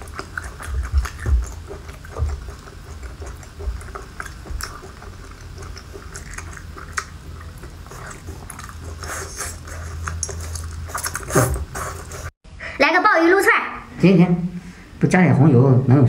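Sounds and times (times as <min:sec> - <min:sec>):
mouth clicks and smacks: 0:00.0 - 0:12.1
person chewing wetly: 0:00.0 - 0:12.3.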